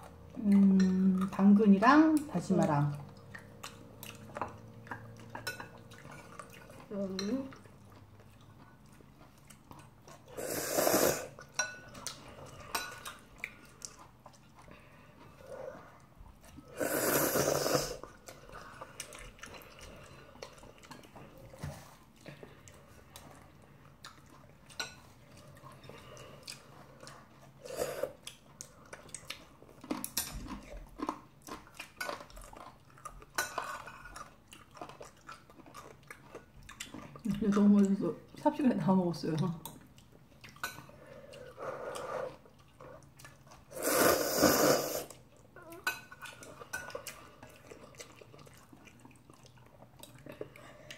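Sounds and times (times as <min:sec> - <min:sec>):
chewing: 0:00.0 - 0:50.9
noodles slurped: 0:09.2 - 0:11.5, 0:16.6 - 0:20.8, 0:41.4 - 0:45.3.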